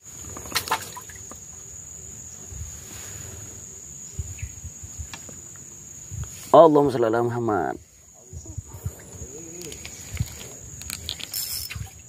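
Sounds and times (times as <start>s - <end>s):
insects shrilling: 0.0s - 12.0s.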